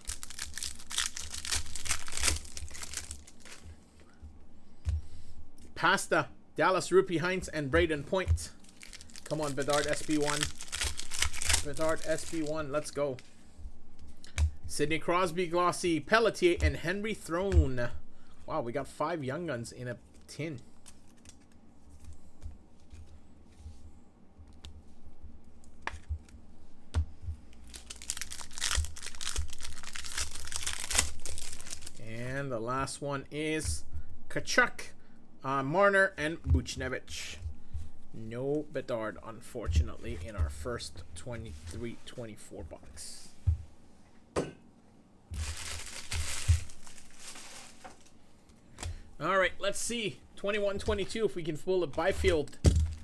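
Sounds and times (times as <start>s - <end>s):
card pack wrapper crinkling and tearing: 0.0s - 3.7s, 8.6s - 13.2s, 20.8s - 21.6s, 27.6s - 32.0s, 45.4s - 48.1s
trading cards being handled: 0.0s - 4.0s, 7.3s - 15.2s, 20.0s - 23.8s, 24.4s - 26.4s, 27.0s - 32.0s, 45.4s - 49.0s.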